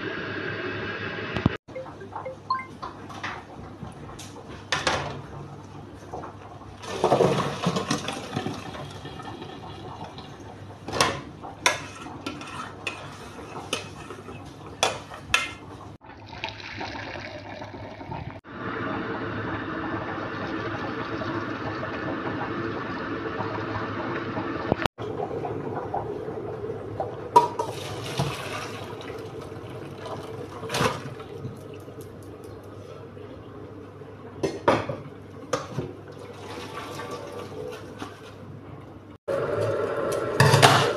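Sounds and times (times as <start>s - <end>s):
metal pots and utensils clattering: 10.9s - 15.6s, 40.4s - 40.9s.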